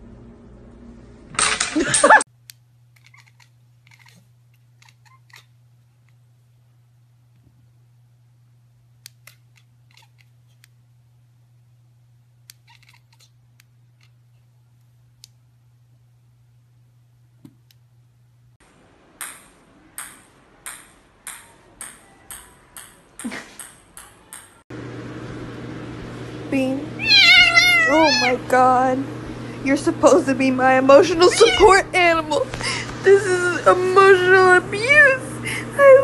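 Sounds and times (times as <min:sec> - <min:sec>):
ball bouncing on tile floor: 0:19.2 - 0:24.6.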